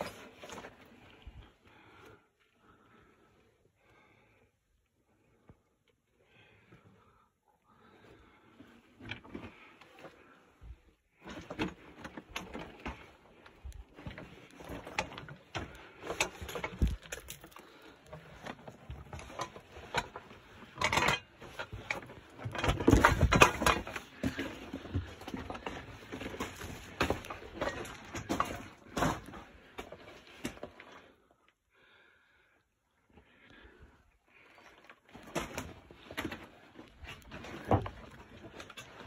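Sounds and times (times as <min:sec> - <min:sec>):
stones knocking and clattering: 0:16.2 - 0:17.8.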